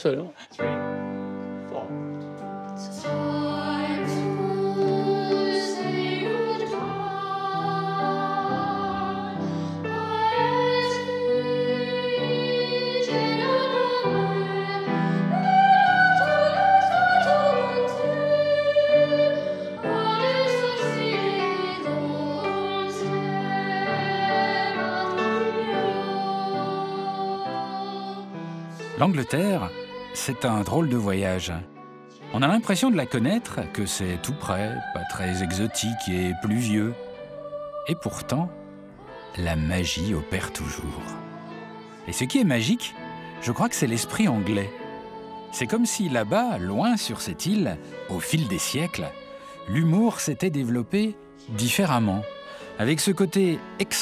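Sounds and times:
upright piano: 0.0s - 30.8s
boys choir singing: 2.9s - 28.3s, 32.2s - 50.6s, 51.6s - 54.0s.

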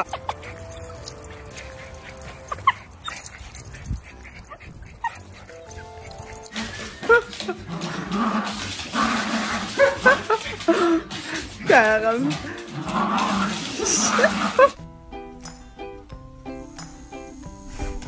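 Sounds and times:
dog whimpering: 0.0s - 6.7s
small dog whining and yipping: 0.0s - 7.0s
background music: 0.0s - 18.0s.

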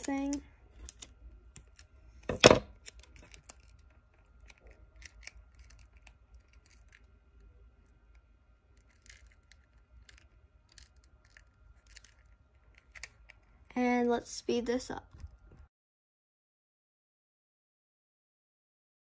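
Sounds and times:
tape crinkling: 0.0s - 13.6s.

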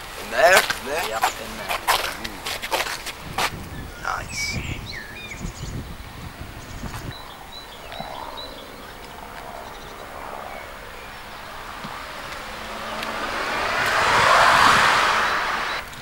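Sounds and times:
faint bird chirps: 6.6s - 12.9s
car passing: 7.2s - 16.0s.

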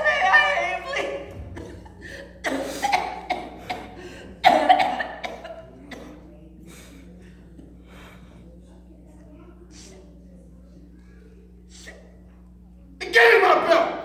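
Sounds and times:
woman coughing and gasping: 1.2s - 6.3s
woman breathing: 3.9s - 4.4s.

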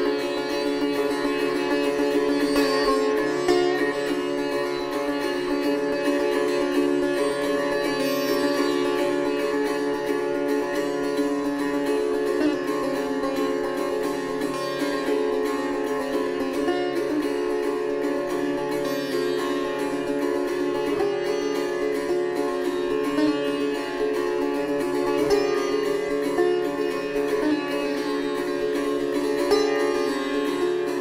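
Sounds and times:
sitar plucked notes: 0.0s - 31.0s
ringing string drone: 0.7s - 9.2s.

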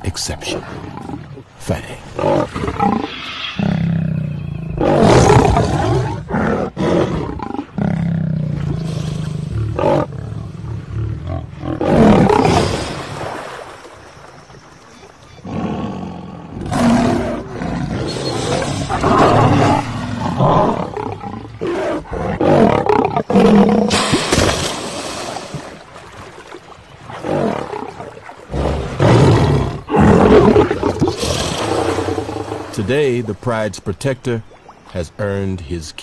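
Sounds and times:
lion growling: 2.1s - 12.8s, 15.4s - 24.0s, 27.2s - 32.8s.

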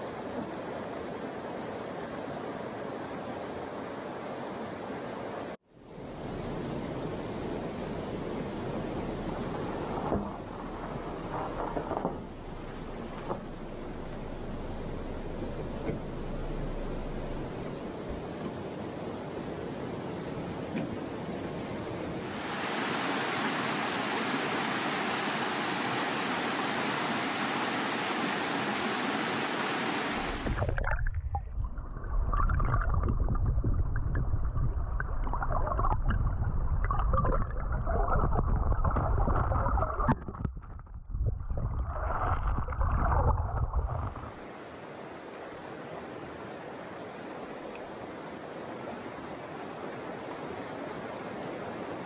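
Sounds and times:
underwater stream gurgle: 6.0s - 19.0s, 22.1s - 52.0s
mountain stream rushing: 6.1s - 30.8s, 44.2s - 52.0s.

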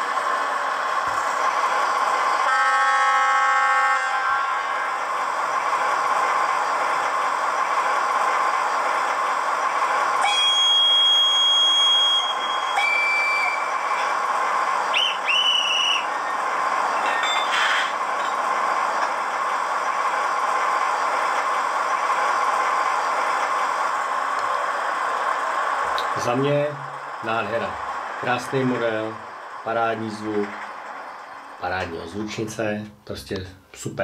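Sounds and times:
model locomotive engine drone: 0.0s - 33.1s
locomotive horn blasts: 2.4s - 5.0s.

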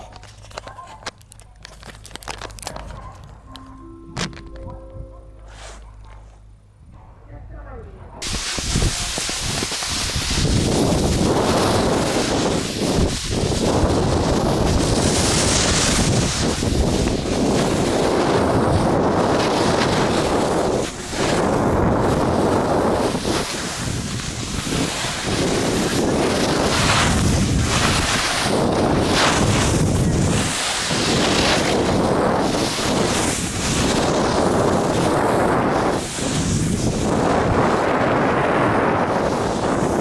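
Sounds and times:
snowboard scraping over snow: 8.2s - 40.0s
wind on microphone: 8.2s - 40.0s.

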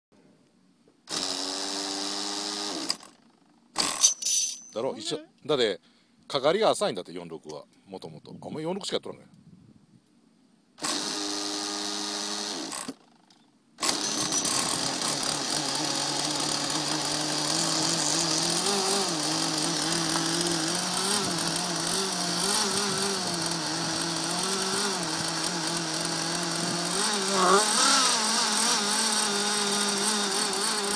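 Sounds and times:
electric starter cranking engine: 1.1s - 4.3s, 10.8s - 13.2s, 13.8s - 30.9s
small engine running: 1.1s - 4.6s, 10.8s - 30.9s.

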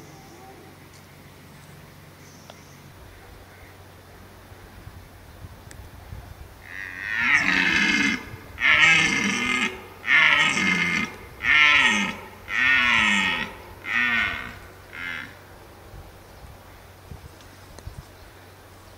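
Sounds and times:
deer stag roaring: 6.6s - 15.4s.

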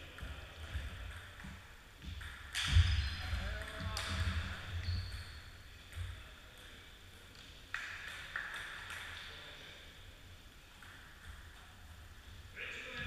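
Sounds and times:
table tennis ball hits and bounces: 0.0s - 6.8s, 7.4s - 9.4s, 10.7s - 11.8s.

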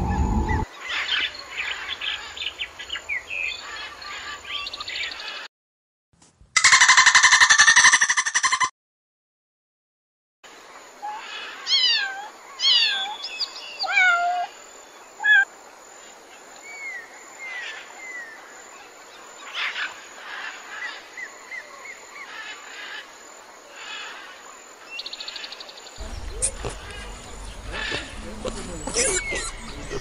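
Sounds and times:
bird rasping notes: 26.0s - 30.0s.

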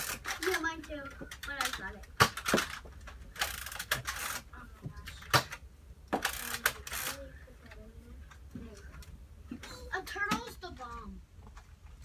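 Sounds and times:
toy blaster mechanical clicks: 0.0s - 0.7s, 1.4s - 2.8s, 3.4s - 4.5s, 6.2s - 7.2s
toy blaster sliding rasps: 3.4s - 4.5s, 6.2s - 7.2s.

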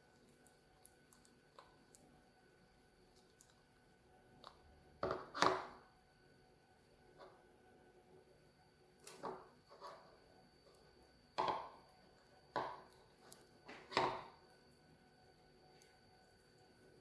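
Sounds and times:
slime squelching: 0.0s - 5.7s.

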